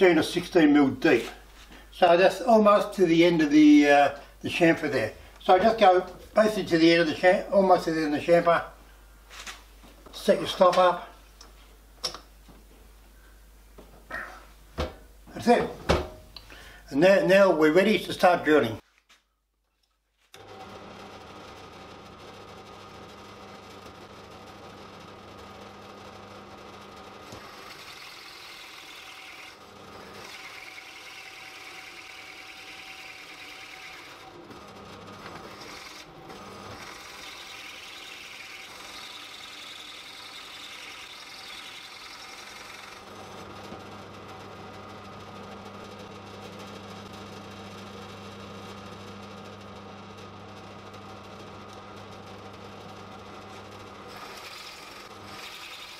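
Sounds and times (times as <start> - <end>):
drill press motor humming: 20.4 - 55.9
drill bit rasping into wood: 27.3 - 34.2, 35.3 - 43.0, 54.1 - 55.9.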